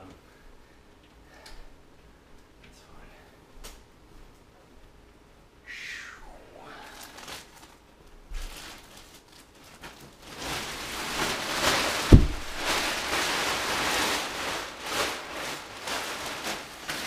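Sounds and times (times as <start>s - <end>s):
plastic wrapping crinkling: 6.8s - 17.0s
sharp thump: 12.1s - 12.5s.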